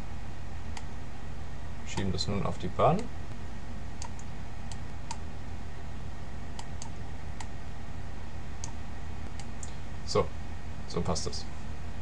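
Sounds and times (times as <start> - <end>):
steady low hum: 0.0 - 12.0
computer mouse clicking: 4.0 - 5.2, 6.6 - 7.5.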